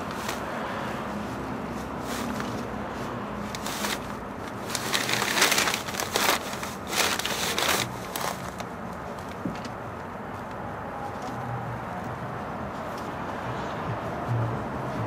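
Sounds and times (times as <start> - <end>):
carpet rustling and scraping: 0.0 - 10.5.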